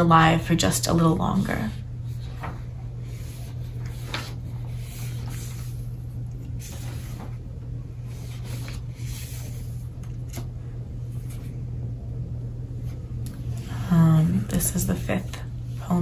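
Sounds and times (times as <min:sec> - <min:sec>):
steady low hum: 0:00.0 - 0:16.0
paper pages rustling: 0:02.1 - 0:11.5.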